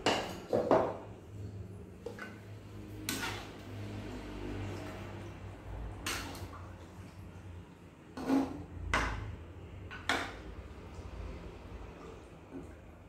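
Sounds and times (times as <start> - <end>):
metal spatula scraping a wok: 2.9 - 4.6, 8.1 - 8.8.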